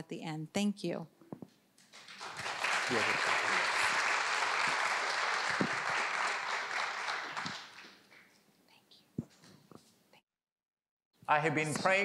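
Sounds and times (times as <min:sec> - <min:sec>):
congregation applauding: 0:01.9 - 0:08.3.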